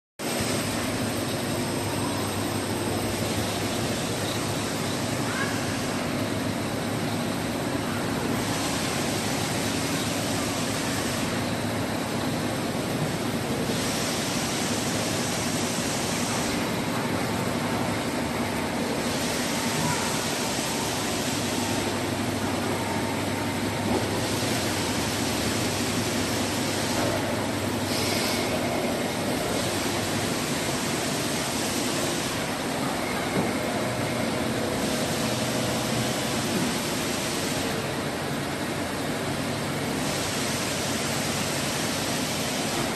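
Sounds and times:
machine hiss: 13.5 - 18.0, 18.8 - 38.0, 39.9 - 42.9.

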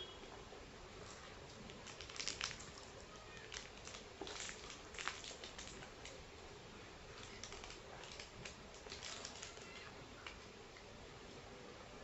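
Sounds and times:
plastic wrappers crinkling: 1.1 - 6.2, 7.1 - 10.4.

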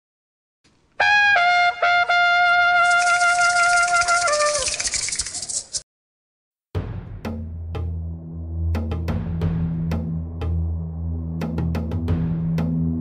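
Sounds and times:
trumpet jingle: 1.0 - 4.9
rattle: 2.8 - 5.8.

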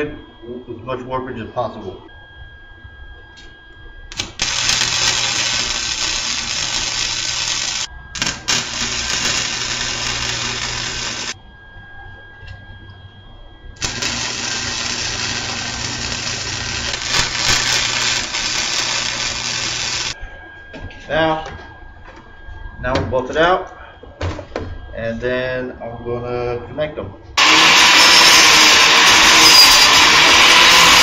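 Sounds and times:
welder arc crackling and hissing: 4.1 - 11.4, 13.8 - 20.2, 27.4 - 31.0.

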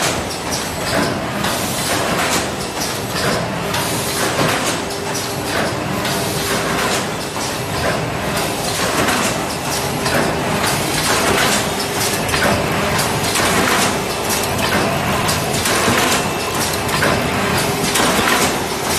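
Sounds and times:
sewing machine clatter: 8.4 - 18.9.

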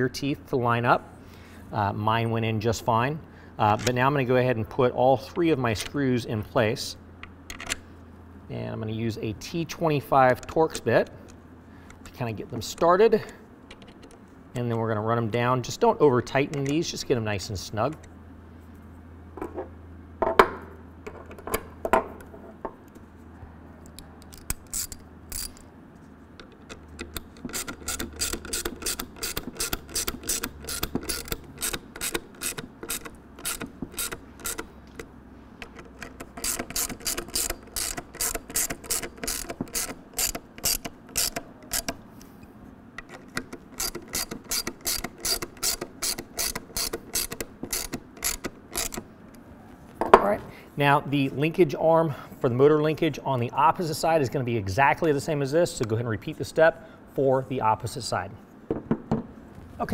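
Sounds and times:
hand ratchet clicking: 24.2 - 25.6, 26.4 - 42.0, 43.0 - 49.1.

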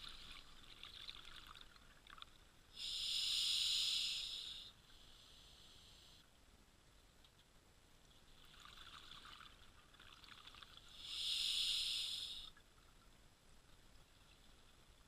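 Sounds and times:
underwater bubbling and crackle: 0.0 - 2.7, 7.0 - 11.1, 12.5 - 15.0
regulator breath hiss: 2.8 - 6.2, 10.9 - 12.5.

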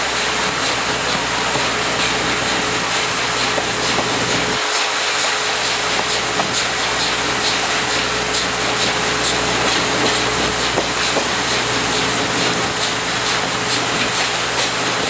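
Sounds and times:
locomotive steam rushing: 0.0 - 15.0
wheels running on rails: 0.0 - 15.0.

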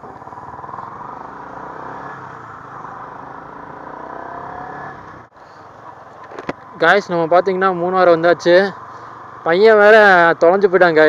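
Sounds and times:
motorcycle engine accelerating: 0.0 - 5.3.

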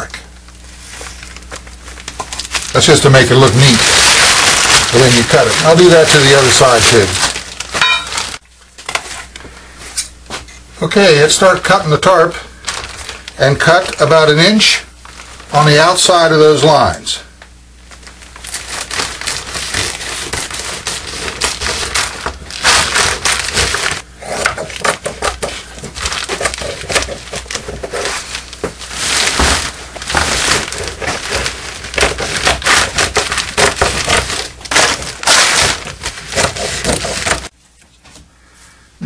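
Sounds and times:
plastic sheet crinkling: 0.0 - 9.4, 11.2 - 16.2, 17.8 - 24.0, 24.6 - 37.6
scissors snipping plastic: 19.2 - 37.5.

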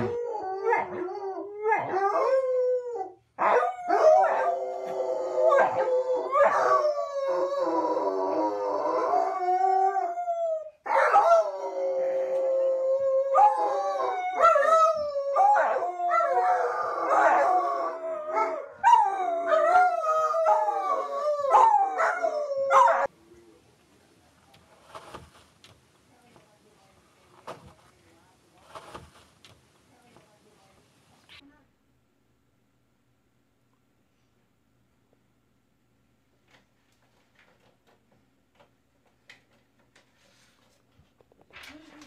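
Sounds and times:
dog howling: 0.0 - 23.1.

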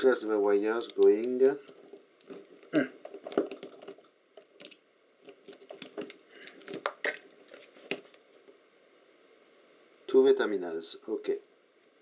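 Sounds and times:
hands picking at electronic module: 0.8 - 8.2.

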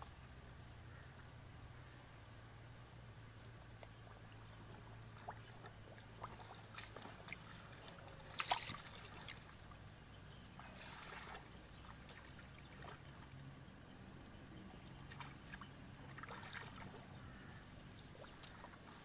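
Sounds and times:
splashes in muddy water: 4.9 - 9.7, 10.5 - 13.2, 15.0 - 18.8.

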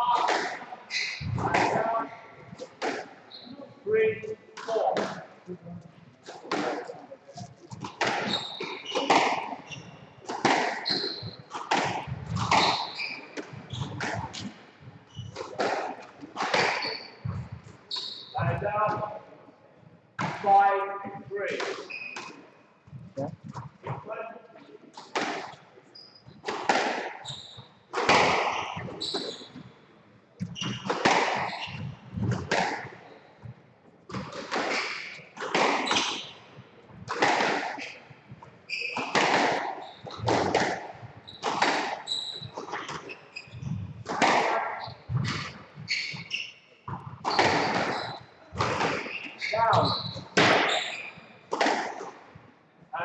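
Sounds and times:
squash ball hits echoing: 0.0 - 3.2, 6.2 - 14.6, 15.2 - 17.7, 25.0 - 25.6, 26.3 - 29.7, 30.4 - 33.0, 34.1 - 52.2
shoe squeaks on wooden floor: 0.9 - 4.1, 6.7 - 19.1, 21.8 - 23.8, 25.9 - 29.8, 30.4 - 33.5, 35.8 - 36.4, 37.8 - 40.6, 41.2 - 43.9, 44.6 - 51.5.

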